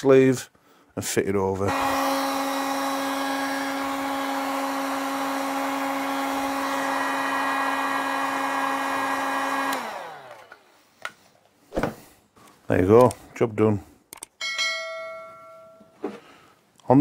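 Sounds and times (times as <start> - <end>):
heat gun fan humming: 1.7 - 10.8.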